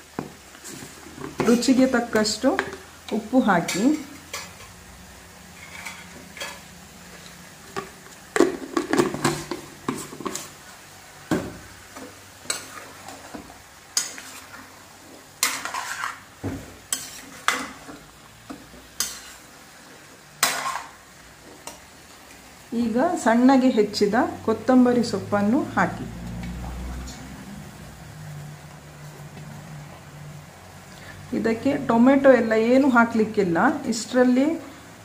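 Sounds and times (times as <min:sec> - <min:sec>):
metal spoon scraping frying pan: 0:00.6 - 0:04.9, 0:05.5 - 0:06.8, 0:07.8 - 0:10.6, 0:11.9 - 0:19.6, 0:20.4 - 0:21.9.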